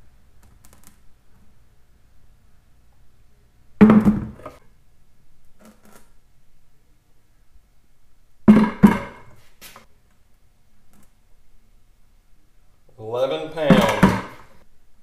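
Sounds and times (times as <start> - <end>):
weight thunk into plastic bucket: 3.8 - 4.6, 8.5 - 9.3, 13.7 - 14.5.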